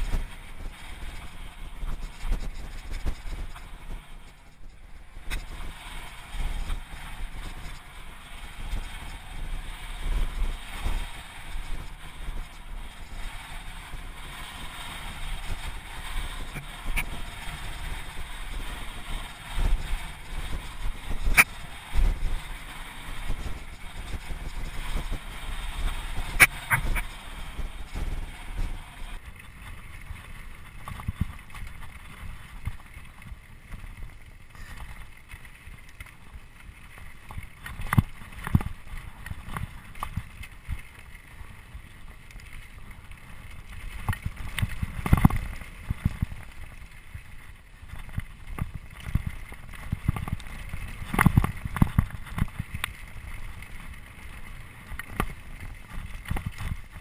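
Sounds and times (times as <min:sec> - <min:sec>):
wind buffeting microphone: 0:00.0 - 0:33.7
bike tyres crunching over stones: 0:00.0 - 0:57.0.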